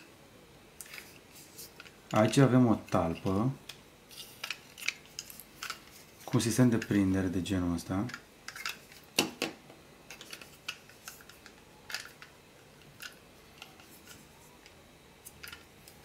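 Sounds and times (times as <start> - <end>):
plastic parts clicking: 1.8 - 7.0, 8.0 - 14.8, 15.4 - 16.0.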